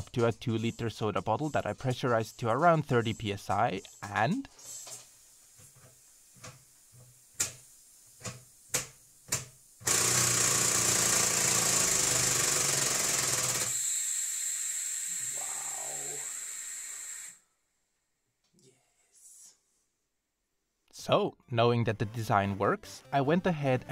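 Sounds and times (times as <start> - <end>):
high steady air leak hiss: 0.0 - 17.5.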